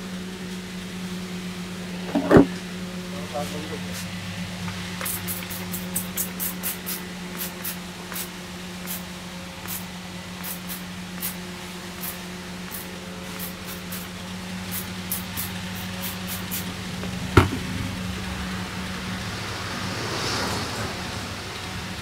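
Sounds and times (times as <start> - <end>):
spray bottle squirts: 5.0 - 8.3, 10.4 - 11.4, 14.7 - 16.7.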